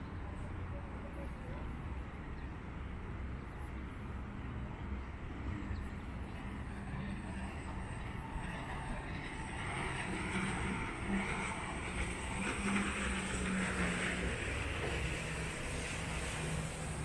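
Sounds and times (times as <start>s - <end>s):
jet ski engine running: 9.4s - 17.0s.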